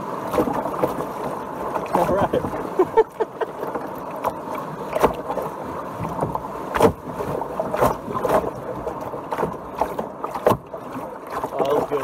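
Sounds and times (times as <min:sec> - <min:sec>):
paddle strokes: 0:00.0 - 0:12.0
water rushing along hull: 0:00.0 - 0:12.0
knocks against canoe hull: 0:06.0 - 0:07.0, 0:09.3 - 0:10.7.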